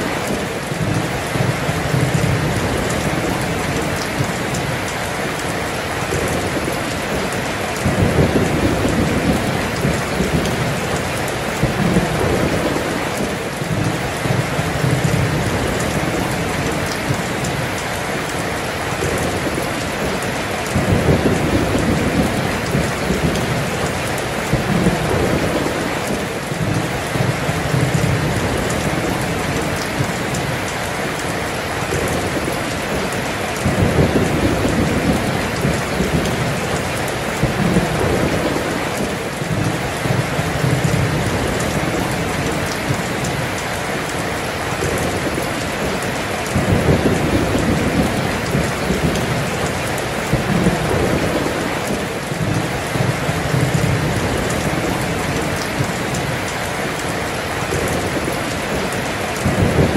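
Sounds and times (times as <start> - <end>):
heavy rain pouring: 0.0 - 59.9
thunder rolling: 6.0 - 17.7, 19.0 - 30.6, 31.8 - 43.6, 44.7 - 56.4, 57.6 - 59.9.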